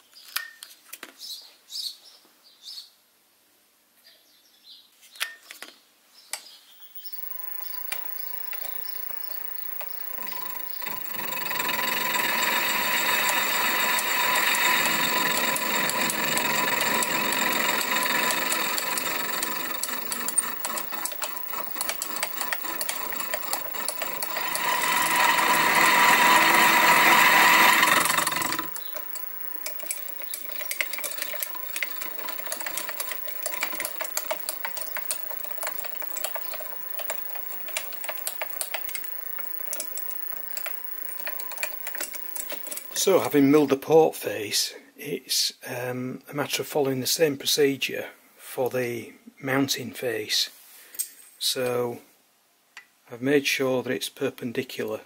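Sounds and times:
milling machine whine: 7.0 - 43.6
rapid ticking: 7.2 - 43.5.

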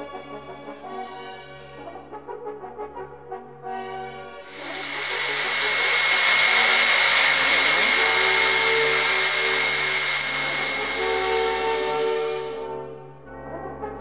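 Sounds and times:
electric drill whining: 4.5 - 12.6.

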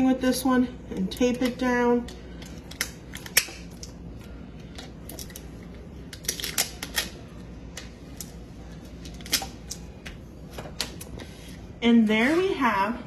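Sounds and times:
duct tape tearing and crackling: 6.1 - 7.2.

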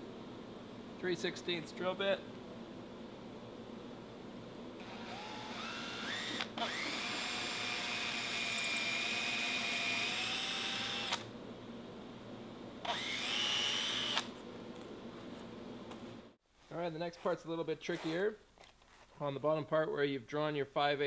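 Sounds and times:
cordless drill boring into wood: 4.8 - 11.3, 12.9 - 14.3.

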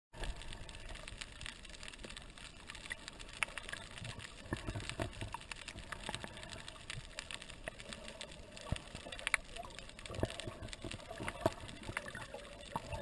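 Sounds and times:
underwater crackle of sharp clicks: 0.2 - 13.0.

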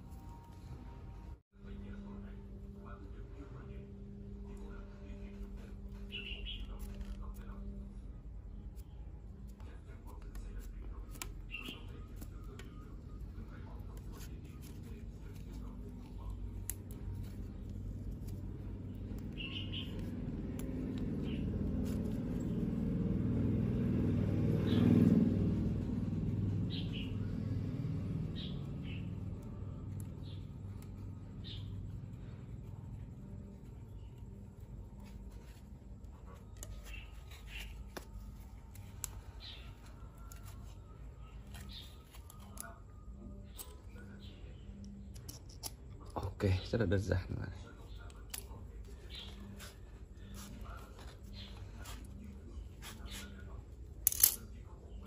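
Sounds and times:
bird chirps: 6.0 - 6.8, 19.3 - 20.1, 26.7 - 27.3
vehicle rumble passing: 17.3 - 33.3.

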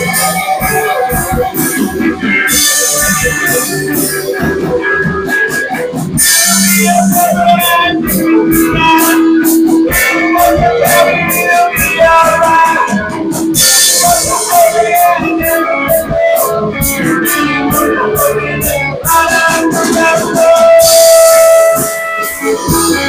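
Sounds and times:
live band with guitar: 0.0 - 23.0.

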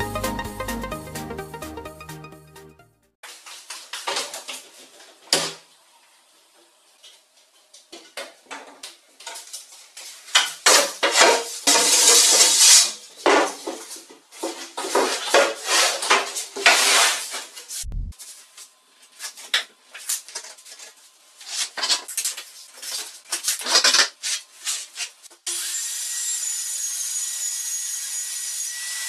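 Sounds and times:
plywood scraping rustle: 11.0 - 17.8.

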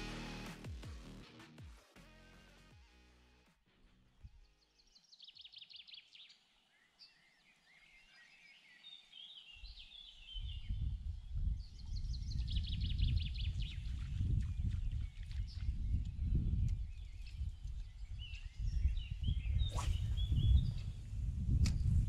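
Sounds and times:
songbirds singing: 4.8 - 21.0.

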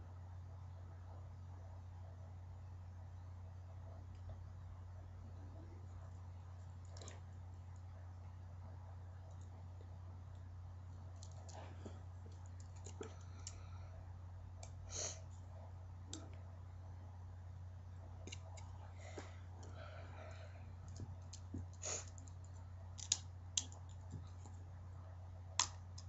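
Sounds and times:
low hum: 0.0 - 26.0
plastic toy pieces clicking: 22.1 - 23.9.

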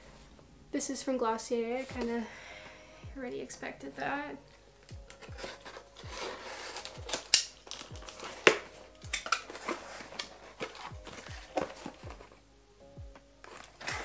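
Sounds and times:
background music with low beat: 0.0 - 14.0.

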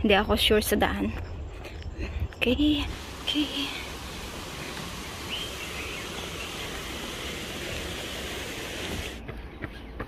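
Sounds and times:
outdoor background hiss: 2.4 - 9.4.

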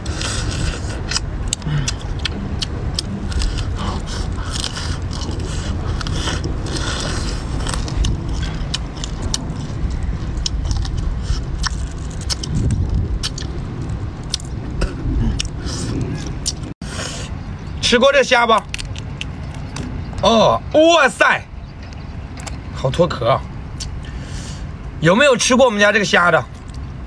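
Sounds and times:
steady low rumble: 0.0 - 27.0
shrimp shells cracking: 18.6 - 19.8.

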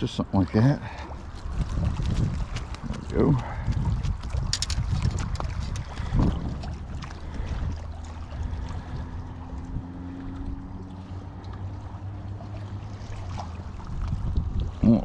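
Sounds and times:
wind rumbling on microphone: 1.0 - 15.0
light clicks and rustles: 3.7 - 6.2.

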